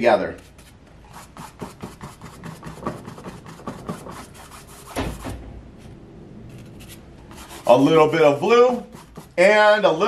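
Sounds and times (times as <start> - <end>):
paintbrush scratching on canvas: 0.4 - 5.3, 6.5 - 9.5
knock: 4.9 - 5.5.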